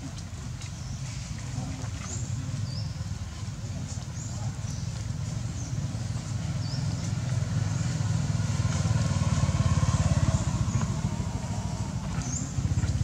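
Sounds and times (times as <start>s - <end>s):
motorcycle engine throbbing: 5.8s - 13.0s.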